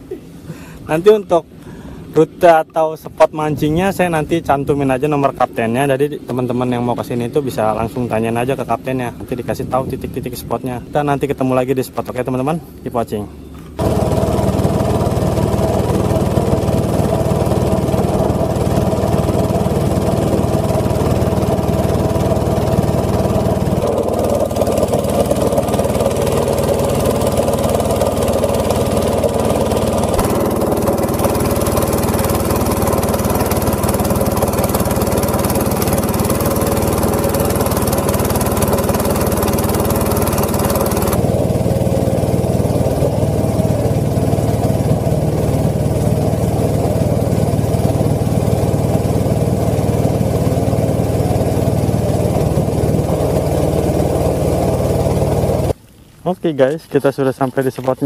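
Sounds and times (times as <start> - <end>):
water noise: 13.6 - 58.0
small petrol engine running: 13.7 - 55.8.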